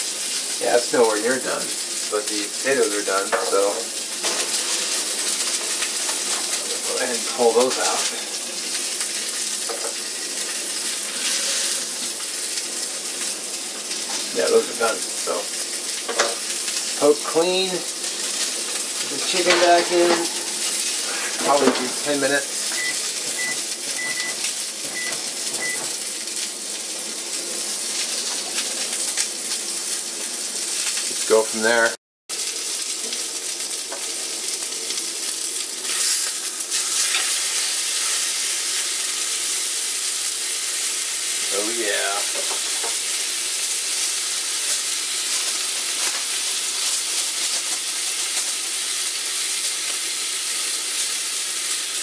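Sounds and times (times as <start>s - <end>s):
steak sizzling in a skillet: 0.0s - 52.0s
high electronic beeps: 22.7s - 25.9s.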